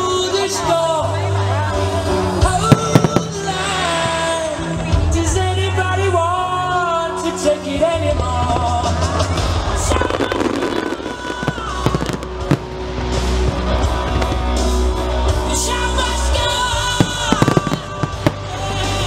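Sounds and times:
loud music: 0:00.0 - 0:19.0
fireworks bursting bangs: 0:02.6 - 0:04.3, 0:08.6 - 0:15.0, 0:16.8 - 0:19.0.

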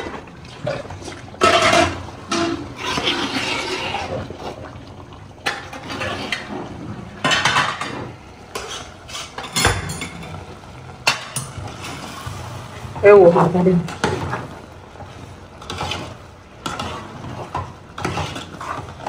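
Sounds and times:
ladle scraping metal pot: 0:00.7 - 0:04.6, 0:05.4 - 0:10.4, 0:13.9 - 0:19.0.

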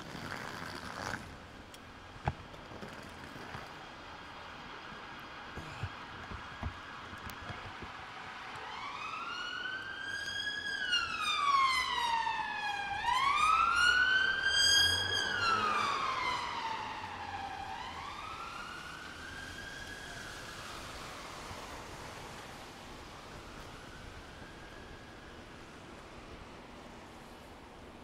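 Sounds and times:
emergency siren wailing: 0:07.2 - 0:26.8.

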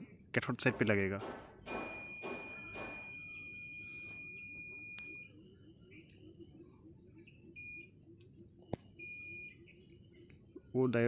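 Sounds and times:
multimeter continuity beep: 0:01.6 - 0:10.7.

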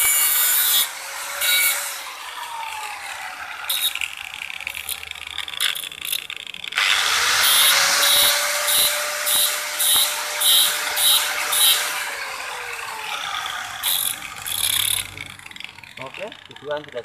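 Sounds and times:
angle grinder grinding metal: 0:00.0 - 0:17.0.

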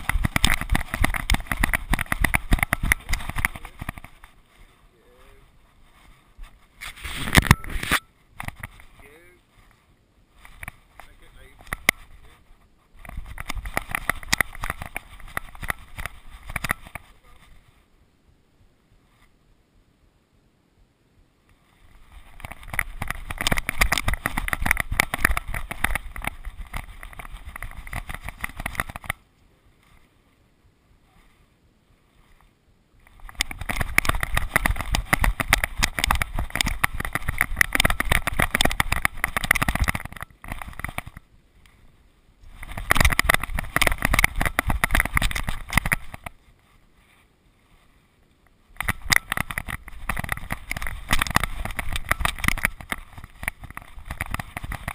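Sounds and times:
camera buffeting and knocking: 0:00.0 - 0:04.5, 0:05.9 - 0:09.0, 0:10.4 - 0:12.4, 0:13.0 - 0:17.6, 0:21.9 - 0:29.3, 0:33.0 - 0:41.3, 0:42.4 - 0:46.4, 0:48.7 - 0:54.9.

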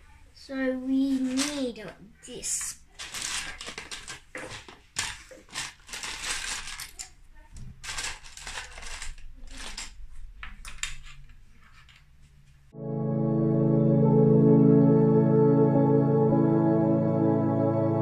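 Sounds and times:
plastic bricks clattering in a tub: 0:02.5 - 0:12.0.

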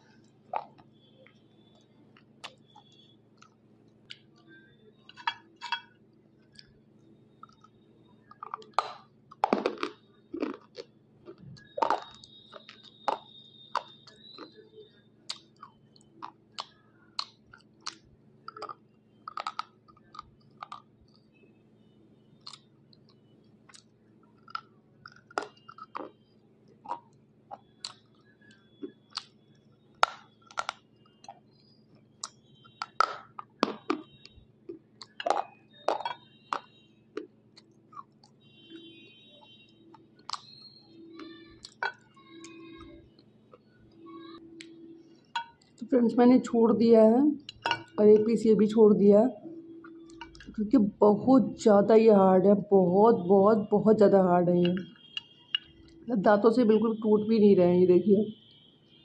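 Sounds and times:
teeth crunching slate pencil: 0:07.4 - 0:21.2, 0:23.8 - 0:31.4.

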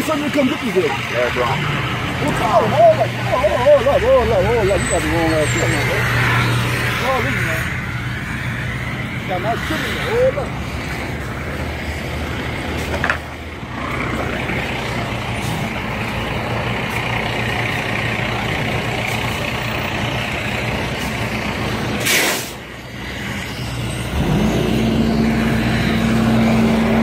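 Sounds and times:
truck engine idling: 0:00.0 - 0:27.0
short hiss: 0:22.0 - 0:22.6.

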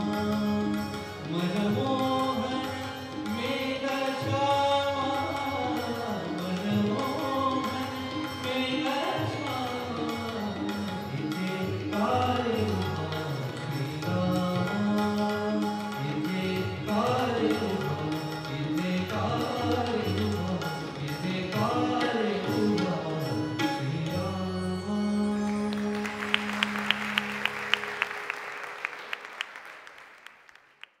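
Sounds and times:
person singing: 0:00.0 - 0:28.2
keyboard: 0:00.0 - 0:29.5
tabla: 0:00.0 - 0:31.0
audience applause: 0:25.7 - 0:31.0.

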